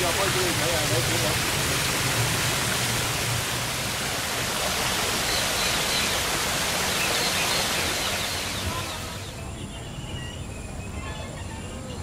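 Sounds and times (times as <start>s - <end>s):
water pouring over rocks: 0.0s - 9.2s.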